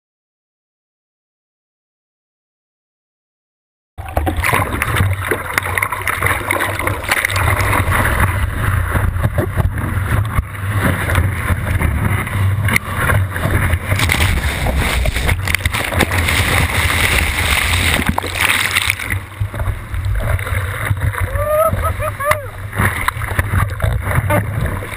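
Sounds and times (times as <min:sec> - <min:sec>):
rushing water and surf: 0:04.0 - 0:24.9
water splashing: 0:04.0 - 0:24.9
wind buffeting microphone: 0:06.7 - 0:24.9.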